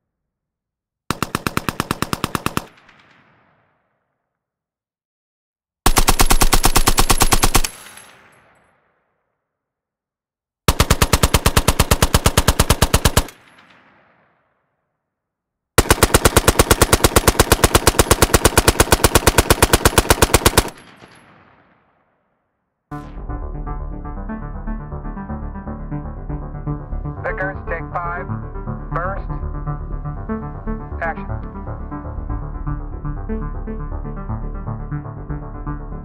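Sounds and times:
machine gun bursts: 5.9s - 8.2s, 10.7s - 13.7s, 15.8s - 21.3s
gunfire echo: 10.8s - 14.6s, 15.8s - 22.1s.

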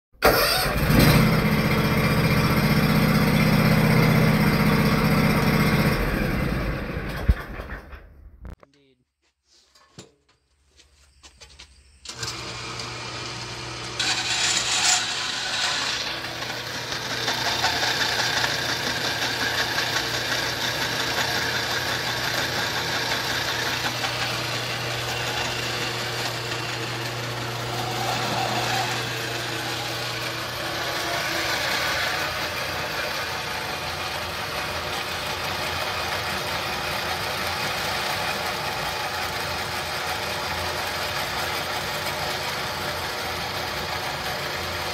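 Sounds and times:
band saw motor humming: 0.9s - 7.1s, 12.1s - 44.9s
saw blade cutting metal: 12.1s - 40.7s.

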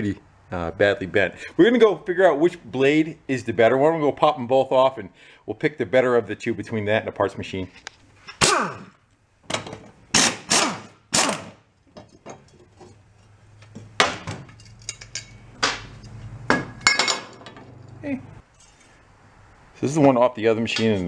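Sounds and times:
hand tools clanking on steel: 11.9s - 19.0s.

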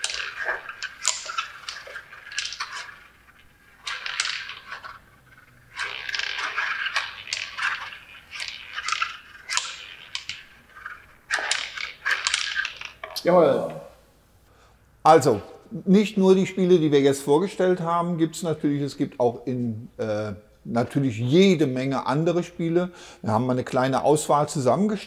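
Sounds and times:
magnetic strikers scraping on board: 0.0s - 13.1s
ball rolling and clacking: 0.0s - 13.2s.

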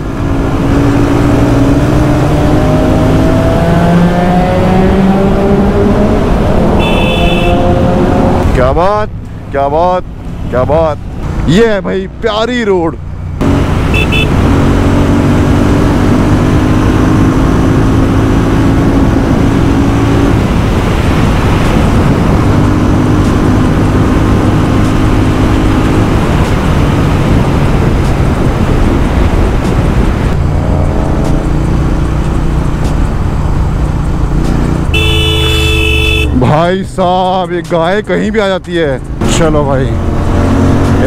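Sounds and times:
loud wind rush: 0.0s - 9.1s, 13.4s - 36.5s
motorcycle engine cruising: 0.0s - 41.0s.

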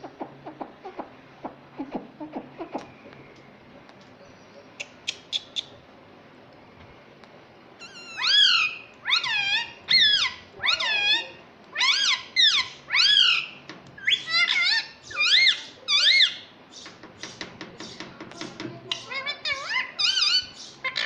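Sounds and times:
parakeet shrill calls: 7.8s - 16.5s, 18.9s - 21.0s.

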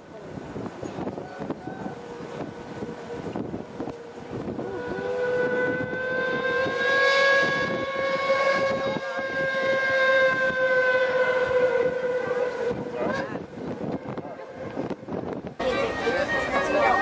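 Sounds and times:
steam whistle blast: 4.4s - 12.4s.

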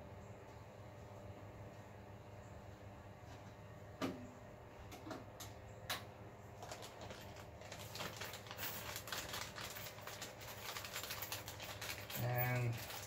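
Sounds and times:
small clicks and rustling: 6.6s - 13.0s.

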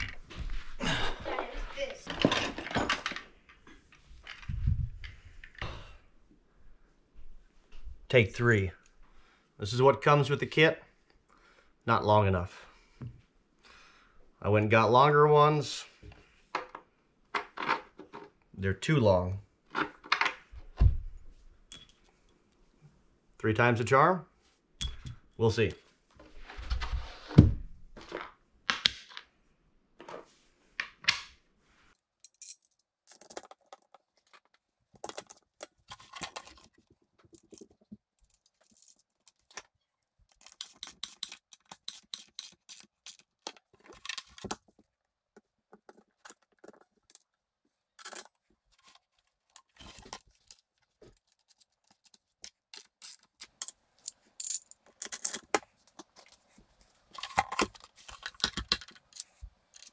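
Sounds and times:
metal bolts clinking and rattling: 2.1s - 3.3s, 21.7s - 22.1s, 24.8s - 25.4s.

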